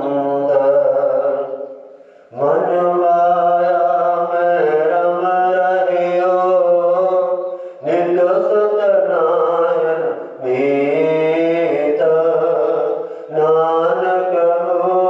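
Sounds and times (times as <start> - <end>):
man chanting: 0.0 - 15.0
breath: 1.8 - 2.4, 7.5 - 7.8, 13.0 - 13.3.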